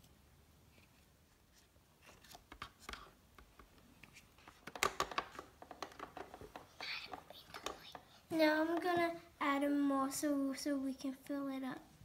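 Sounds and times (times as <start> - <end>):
small plastic clicks and taps: 4.5 - 8.0.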